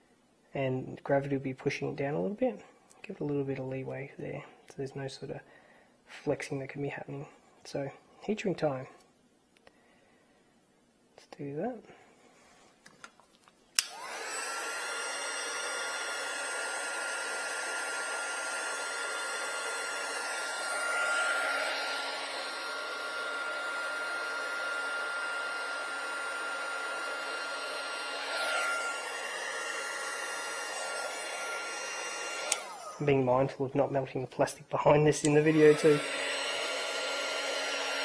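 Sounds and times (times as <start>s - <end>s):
hot air gun switch click: 13.8s - 14.0s
hot air gun whining: 13.8s - 33.2s, 35.2s - 38.0s.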